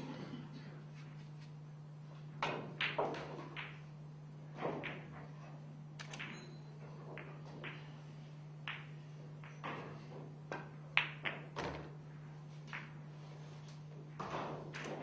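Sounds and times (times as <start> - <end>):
low electrical hum: 0.0 - 15.0
pool balls clicking together: 10.5 - 11.9
cue striking ball: 10.5 - 12.0.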